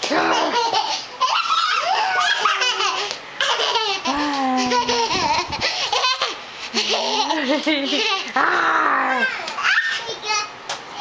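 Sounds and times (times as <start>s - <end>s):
toddler laughing: 0.2s - 8.4s.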